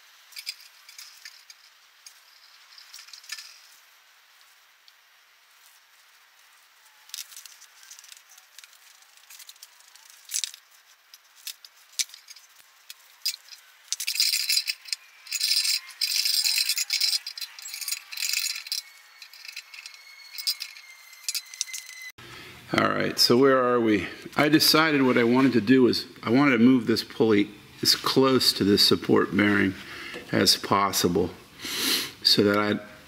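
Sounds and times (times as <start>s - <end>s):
tools and parts clinking: 0.2s - 3.8s, 7.0s - 22.1s
ratchet wrench clicking: 11.4s - 22.0s.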